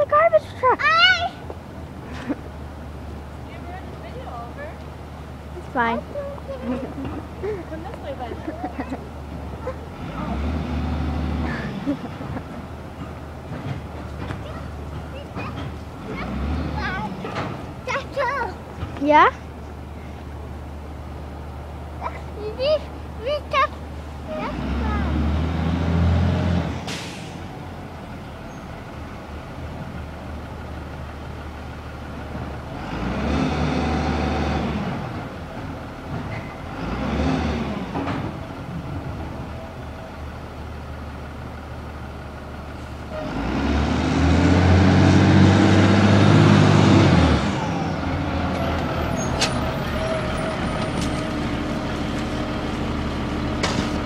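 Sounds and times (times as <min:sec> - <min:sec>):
diesel truck engine idling and revving: 0:00.0 - 0:54.0.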